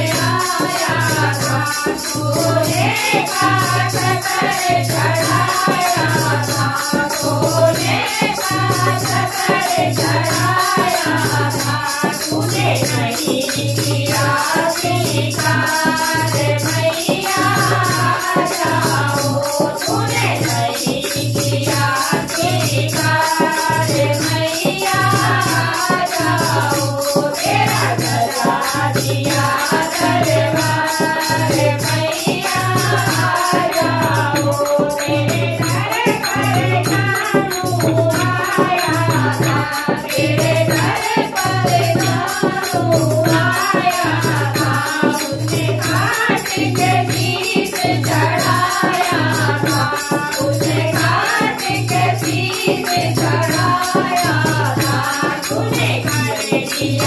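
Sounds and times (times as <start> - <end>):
women singing devotional song: 0.0 - 57.0.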